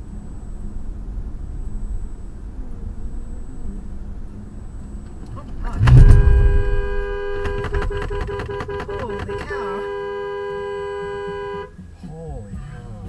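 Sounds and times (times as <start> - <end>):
car horn two-tone blast: 5.1 - 11.8
loud low thump: 5.3 - 9.5.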